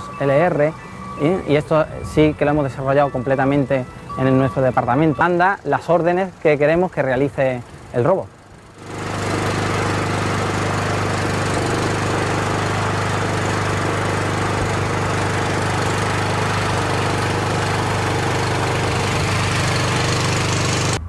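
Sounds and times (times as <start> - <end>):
excavator engine running: 0.0 - 21.0.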